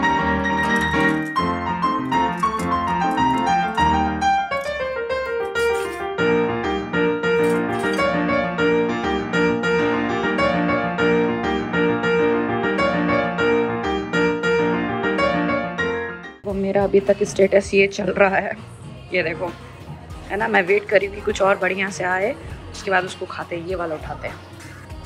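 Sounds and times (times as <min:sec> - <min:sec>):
piano music: 0:00.0 - 0:18.3.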